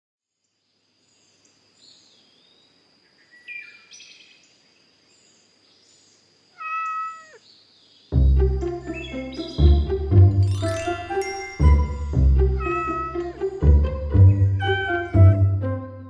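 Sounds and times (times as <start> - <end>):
birds chirping: 5.1 - 15.4
cat meowing: 6.6 - 7.4, 12.6 - 13.2, 14.6 - 15.2
loud music: 8.2 - 16.0.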